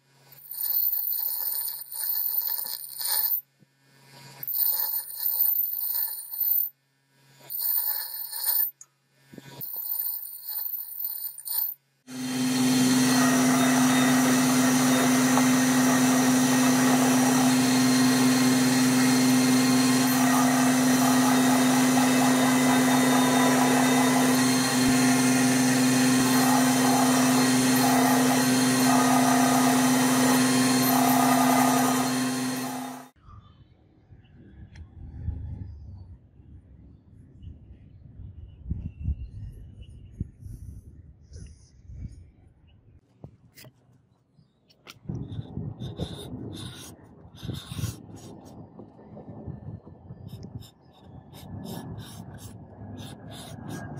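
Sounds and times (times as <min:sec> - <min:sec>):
bench grinder grinding steel: 0:00.4 - 0:03.5, 0:04.2 - 0:06.7, 0:07.4 - 0:08.8, 0:09.4 - 0:33.2, 0:50.4 - 0:53.9
drum sander humming: 0:09.6 - 0:33.2.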